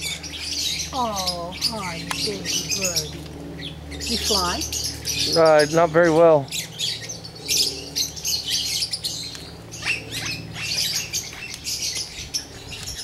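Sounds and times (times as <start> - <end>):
parakeets chattering and squawking: 0.0 - 13.0
steady low hum: 0.0 - 13.0.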